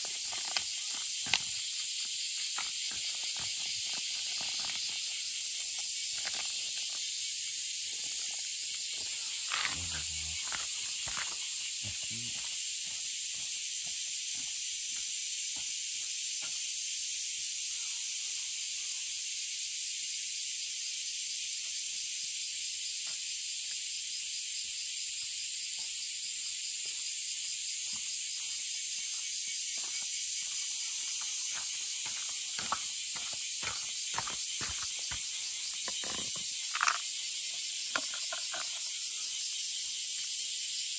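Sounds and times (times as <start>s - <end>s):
cat chewing and crunching kibble: 0.0s - 1.6s
insects chirring: 0.0s - 40.9s.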